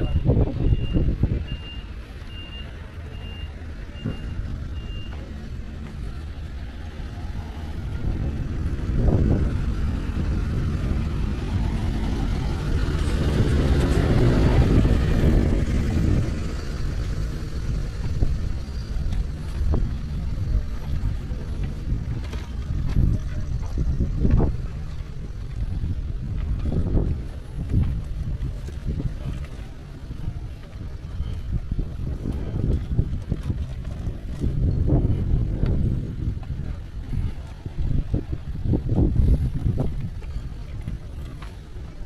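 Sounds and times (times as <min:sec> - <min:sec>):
reversing alarm beeping: 0:00.0 - 0:05.3
vehicle rumbling past: 0:00.0 - 0:42.0.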